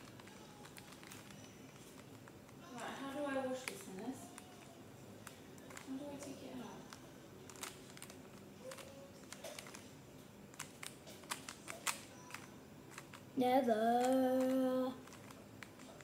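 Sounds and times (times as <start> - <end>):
puzzle cube clicking as twisted: 7.5 - 9.9, 10.5 - 13.3, 14.0 - 16.0.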